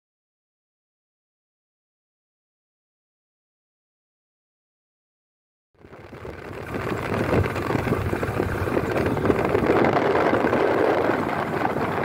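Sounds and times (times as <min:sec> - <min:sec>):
vehicle road noise: 0:05.8 - 0:12.0
wind buffeting microphone: 0:05.8 - 0:12.0.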